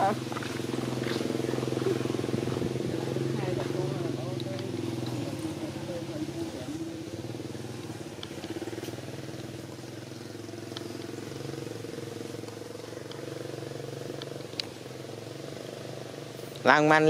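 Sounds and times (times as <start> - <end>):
engine running steadily: 0.0 - 17.0
faint high ticks: 7.7 - 15.1.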